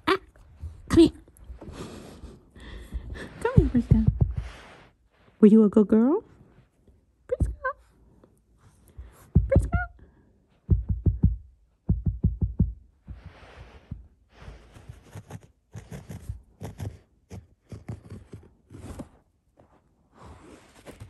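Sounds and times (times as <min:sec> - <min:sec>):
dog paws scratching carpet: 0:02.9 - 0:05.3, 0:13.0 - 0:19.8.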